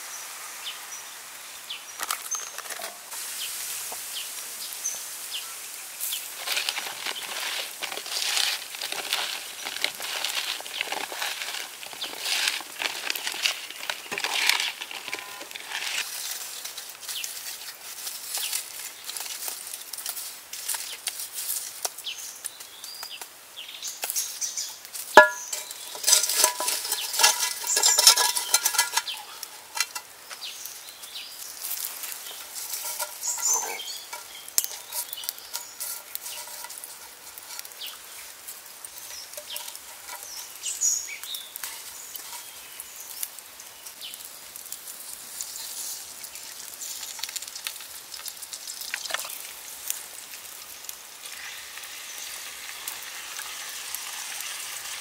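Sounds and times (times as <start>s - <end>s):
vegetables rustling on a bamboo tray: 6.0s - 22.9s, 24.9s - 50.6s
metal pot clanging: 6.4s - 16.0s, 25.2s - 30.1s, 32.2s - 38.0s, 38.9s - 42.6s
herbs dropped into pot: 6.4s - 16.1s, 25.1s - 30.1s, 31.8s - 37.9s.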